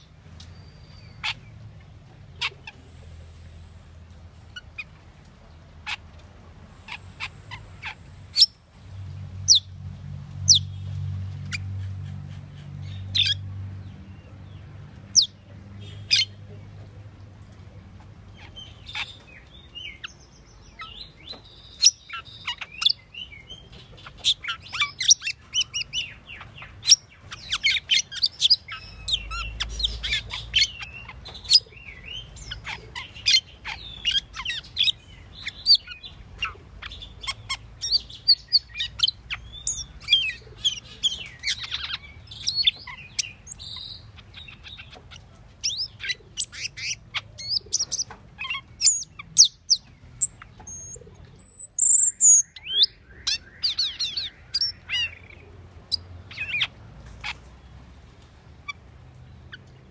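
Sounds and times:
starling chirping and whistling: 20.8s - 56.7s.

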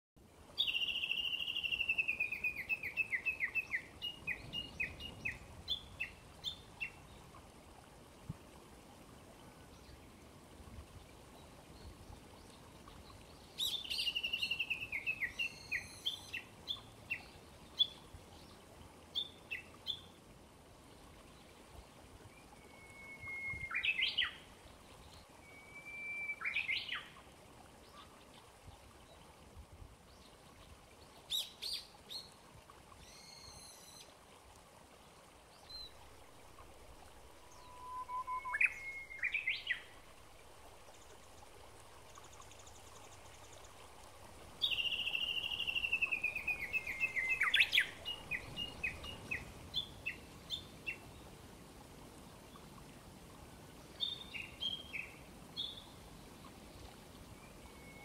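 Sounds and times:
faint running water: 0.2s - 58.0s
songbirds singing: 0.6s - 7.2s, 44.6s - 51.2s
bird whistle with quick flourish: 37.6s - 39.3s.

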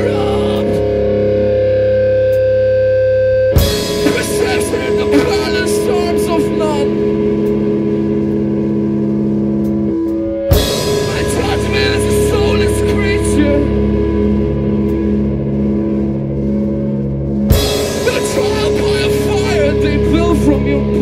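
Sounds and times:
rock band playing live: 0.0s - 21.0s
short guitar lines: 0.0s - 21.0s
drum and cymbal hit: 3.6s - 7.0s, 10.5s - 21.0s.

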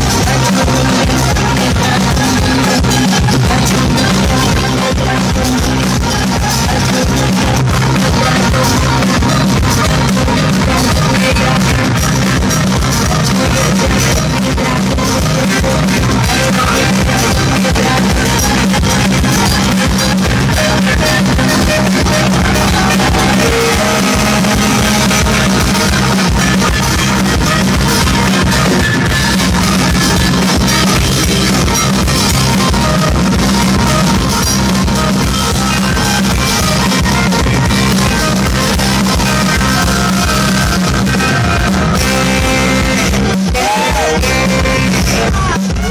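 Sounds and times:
woman singing: 0.0s - 12.2s, 13.0s - 26.1s, 43.5s - 45.9s
drum kit: 0.0s - 45.9s
electric bass: 0.0s - 45.9s
saxophone: 0.0s - 45.9s.

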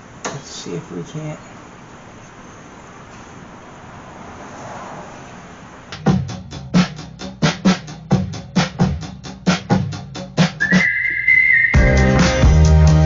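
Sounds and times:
music with drum kit beat: 6.0s - 11.0s, 11.7s - 13.0s.

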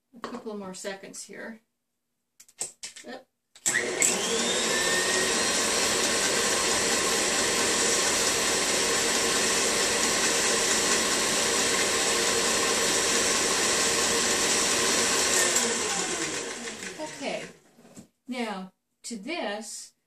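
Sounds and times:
stand mixer running: 3.7s - 17.6s.

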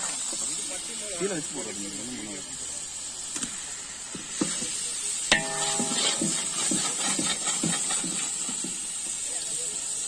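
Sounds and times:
gas burner hiss: 0.0s - 10.0s
metal clang on pot: 5.3s - 8.8s
metal ladle stirring in pot: 5.3s - 9.0s.

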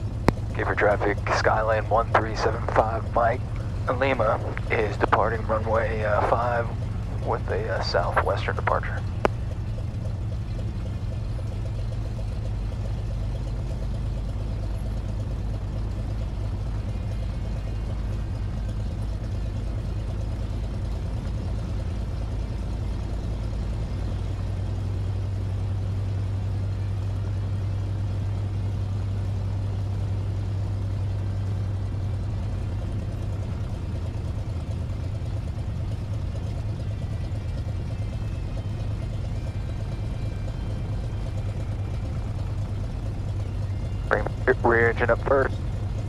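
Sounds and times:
aircraft piston engines droning: 0.0s - 46.0s.

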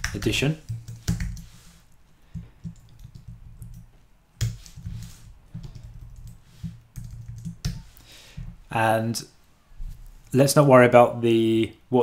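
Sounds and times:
computer keyboard typing: 0.0s - 1.5s, 2.3s - 7.8s.

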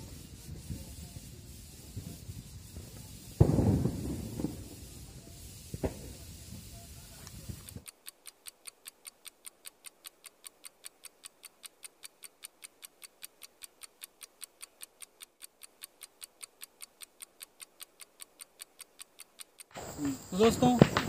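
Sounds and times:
clock ticking fast: 7.3s - 20.8s.

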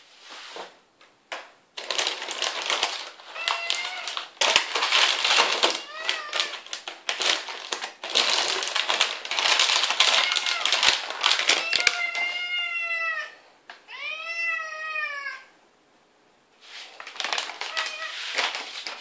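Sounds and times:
plastic bag crinkling: 1.8s - 12.5s, 16.8s - 19.0s
cat meowing: 3.3s - 4.3s, 5.6s - 6.7s, 9.9s - 15.6s, 17.6s - 18.4s.

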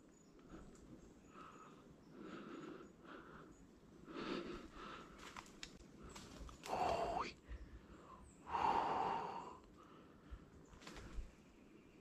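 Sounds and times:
faint clicks: 0.3s - 1.6s, 5.1s - 7.6s, 9.6s - 9.9s, 10.6s - 11.3s.

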